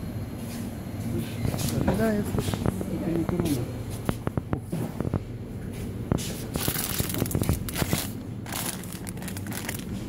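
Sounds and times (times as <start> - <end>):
close rustling and crinkling: 6.2 - 10.0.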